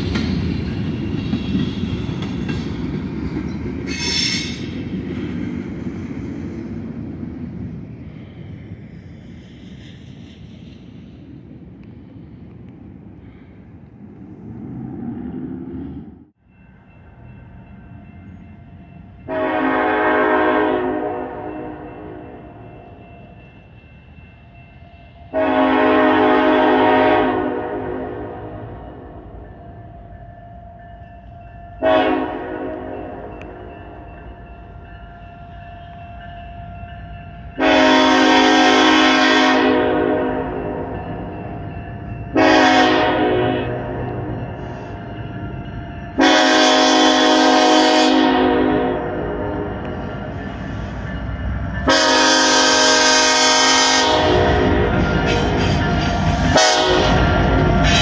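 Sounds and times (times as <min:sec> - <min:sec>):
locomotive air horn blast: 0:19.3 - 0:22.2, 0:25.3 - 0:28.7, 0:31.8 - 0:33.3, 0:37.6 - 0:40.9, 0:42.4 - 0:44.2, 0:46.2 - 0:49.8, 0:51.9 - 0:55.8, 0:56.5 - 0:58.0.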